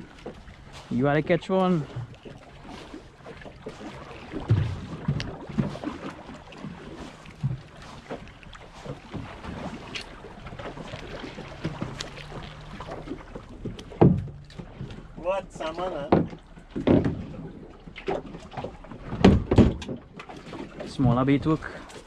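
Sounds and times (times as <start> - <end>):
water slapping against boat hull: 0.0 - 22.0
dull knocks: 13.6 - 15.0, 16.1 - 17.4, 19.0 - 20.1.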